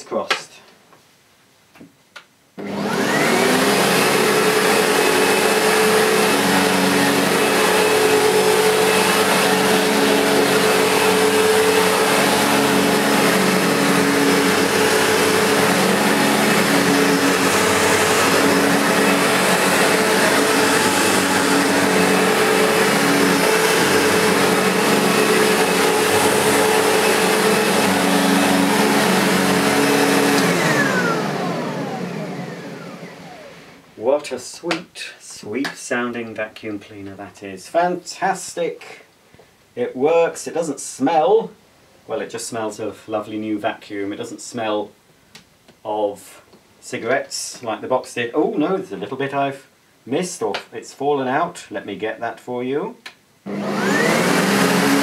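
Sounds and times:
vacuum pushed over carpet: 2.6 - 33.8, 53.5 - 55.0
upright vacuum cleaner motor whining: 2.6 - 33.9, 53.5 - 55.0.

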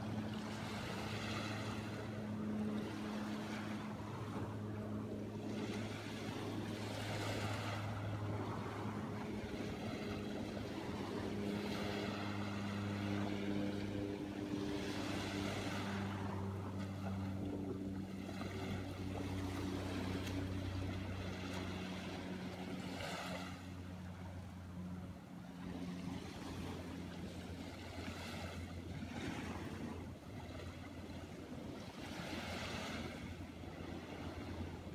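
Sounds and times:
low motor hum: 0.0 - 34.9
small waves washing onto sand: 0.0 - 34.9.

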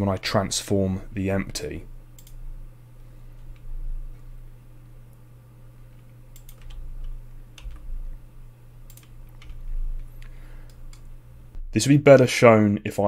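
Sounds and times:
low electrical hum: 0.0 - 13.0
keyboard and mouse clicks: 2.2 - 2.4, 5.9 - 7.9, 8.9 - 11.1.

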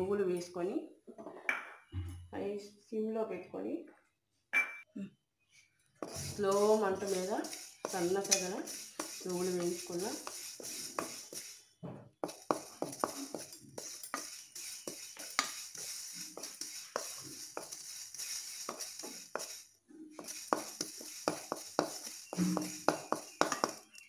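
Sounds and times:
seeds crackling and popping in pan: 6.0 - 24.0
wooden spatula scraping pan: 6.0 - 24.0.

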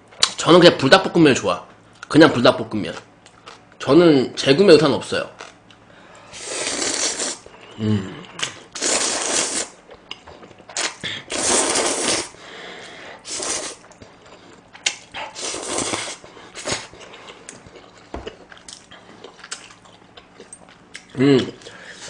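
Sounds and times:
person slurping noodles: 6.4 - 8.2, 8.8 - 9.8, 10.8 - 12.4, 13.2 - 13.8, 15.2 - 16.9.

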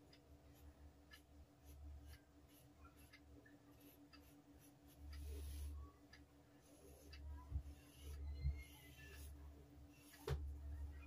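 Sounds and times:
chalk scratching on fabric: 3.7 - 5.8, 6.6 - 9.4.

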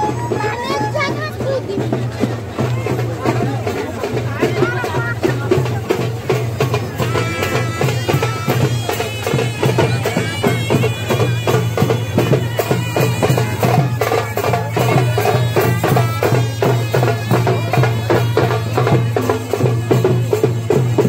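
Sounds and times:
drum strokes: 0.0 - 21.0
high wind instrument melody: 6.6 - 21.0.

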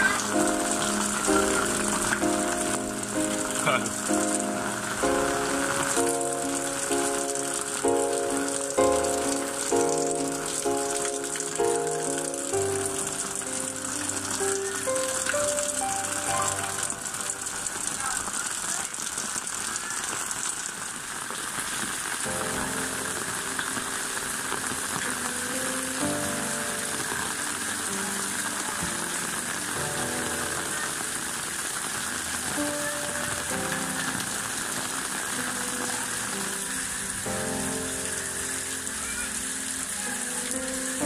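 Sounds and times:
soft background music: 0.0 - 18.4, 22.2 - 41.0
rain splashing: 0.0 - 41.0.

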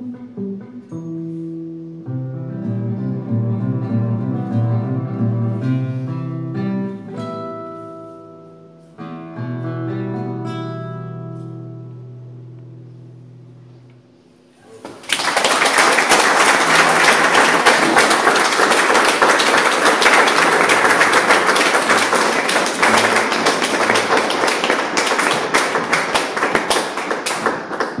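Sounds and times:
audience applause: 14.7 - 28.0.

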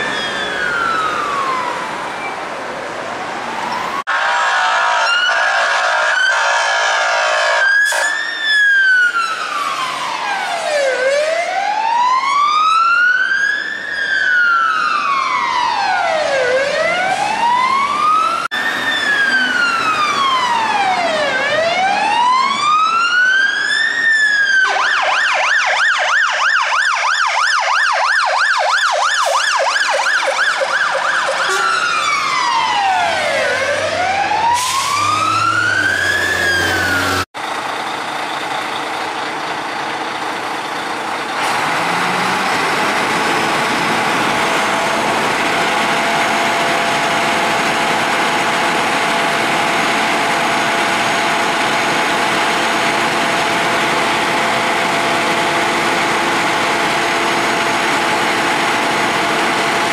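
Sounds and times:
fire engine siren wailing: 0.0 - 59.9
siren fast yelp: 3.6 - 37.2
horn-like tone: 4.1 - 8.2, 31.4 - 31.8.

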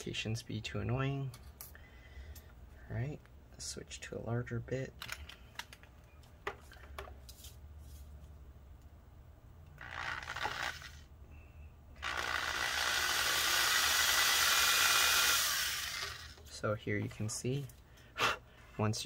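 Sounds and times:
power drill boring into plastic: 9.8 - 11.1, 12.0 - 16.4.

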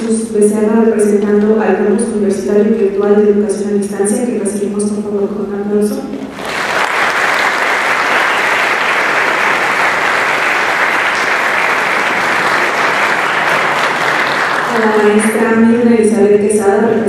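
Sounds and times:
audience applauding: 6.3 - 15.2.

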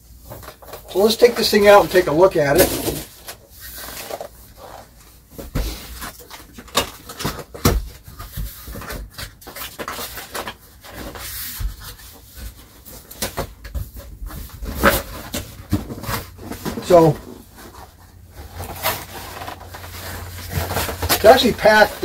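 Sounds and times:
cardboard box being handled: 13.9 - 22.0.

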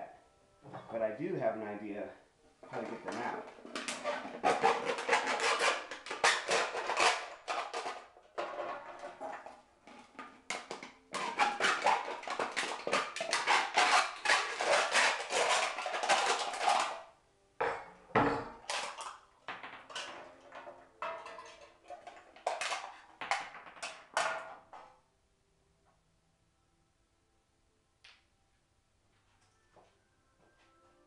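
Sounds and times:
hacksaw sawing metal can: 2.8 - 9.5, 10.5 - 17.0.

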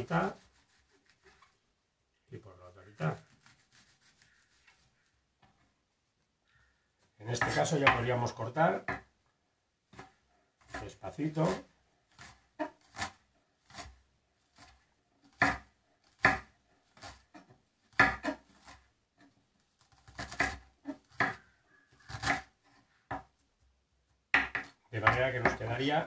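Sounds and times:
knife chopping on cutting board: 7.4 - 8.1, 15.3 - 17.4, 18.0 - 18.4, 20.1 - 21.4, 22.0 - 22.5, 24.4 - 25.7.

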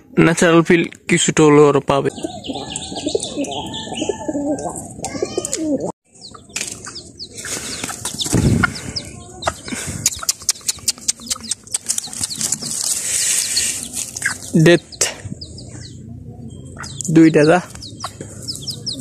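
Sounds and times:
chicks peeping: 2.0 - 19.0
thud: 8.3 - 8.6.

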